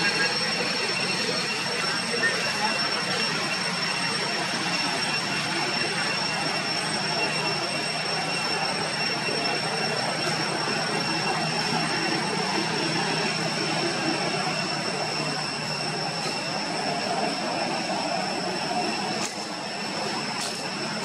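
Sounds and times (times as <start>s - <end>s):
steady background noise: 0.0s - 21.0s
thin high whine: 0.0s - 21.0s.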